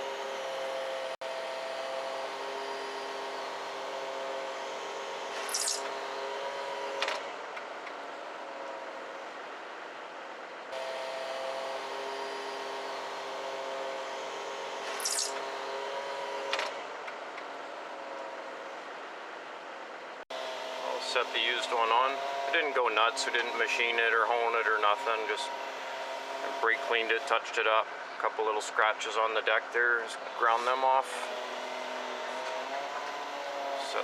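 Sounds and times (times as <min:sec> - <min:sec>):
heavy machine engine and hydraulics: 0:00.0 - 0:34.0
short high squeal: 0:05.4 - 0:05.9, 0:14.9 - 0:15.4.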